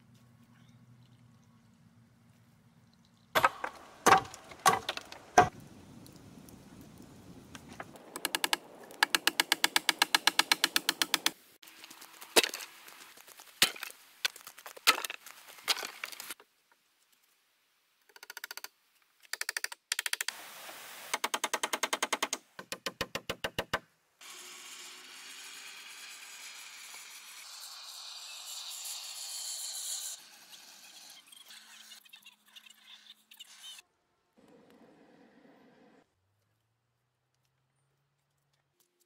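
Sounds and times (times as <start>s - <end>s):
steady hiss: 20.3s - 21.2s.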